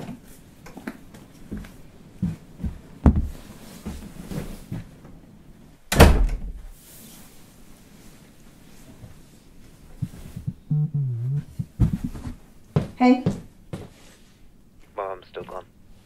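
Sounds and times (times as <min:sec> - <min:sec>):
dull knocks and thuds: 0:02.7 - 0:03.4, 0:11.5 - 0:13.4.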